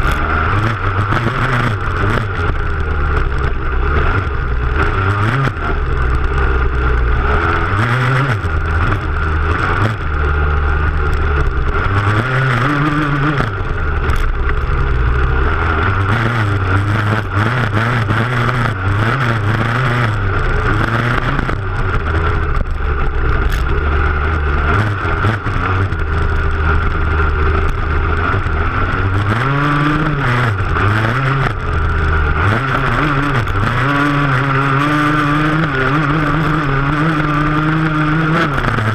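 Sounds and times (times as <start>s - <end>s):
motocross engine revving: 0.0s - 38.9s.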